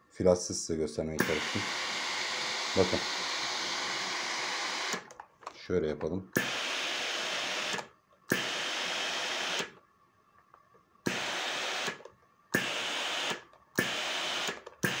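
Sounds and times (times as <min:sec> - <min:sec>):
steam iron hissing: 0:01.2 - 0:05.1, 0:06.4 - 0:09.7, 0:11.1 - 0:12.0, 0:12.6 - 0:15.0.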